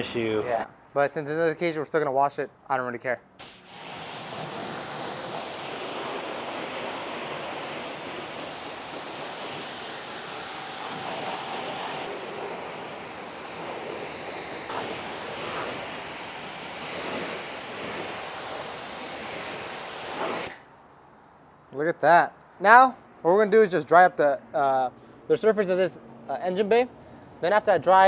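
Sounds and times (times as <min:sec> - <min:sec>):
water spray hissing on engine: 0:03.4 - 0:20.6.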